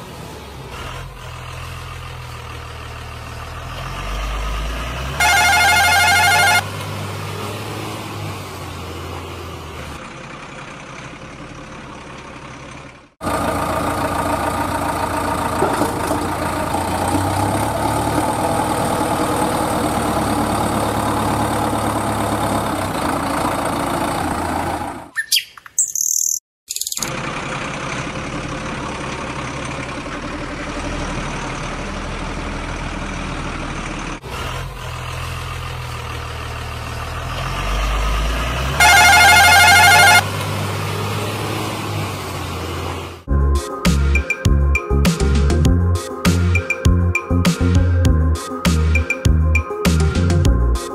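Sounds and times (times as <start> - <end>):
truck engine running: 0.0 - 25.1, 27.0 - 50.8
loud wavering tone: 5.2 - 6.6, 38.8 - 40.2
birds chirping: 25.1 - 27.0.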